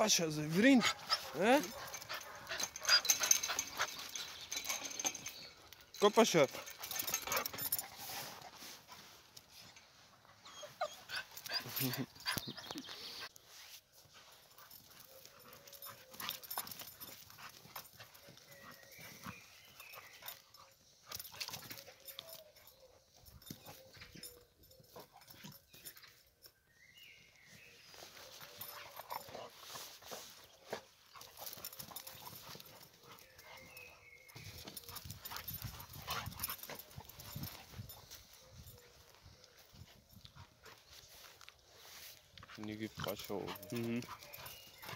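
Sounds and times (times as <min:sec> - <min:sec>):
dogs scuffling on grass: 0:00.0 - 0:22.5, 0:27.5 - 0:44.9
dogs panting: 0:00.0 - 0:26.4, 0:27.9 - 0:44.9.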